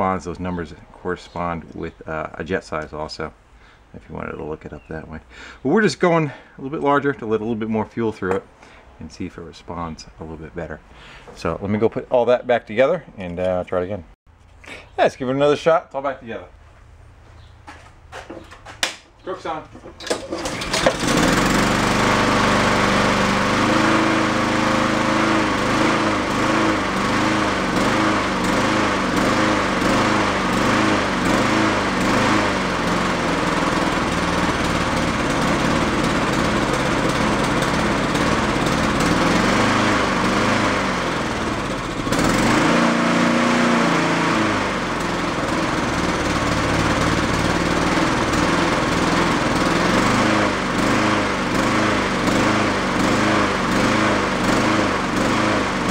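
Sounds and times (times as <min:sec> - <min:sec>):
lawn mower engine surging: 0:19.4 - 0:55.9.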